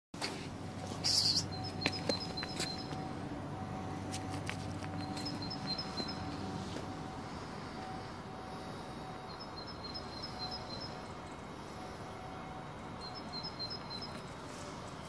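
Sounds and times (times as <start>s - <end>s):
outdoor background noise: 0.2s - 15.0s
bird chirping: 0.9s - 3.1s, 4.9s - 6.5s, 9.3s - 11.4s, 12.8s - 14.4s.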